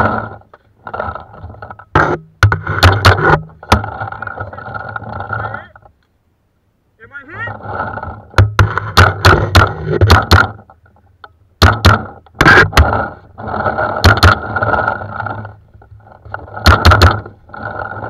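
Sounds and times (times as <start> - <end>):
rough rushing noise: 7.0 - 10.5, 11.6 - 18.0.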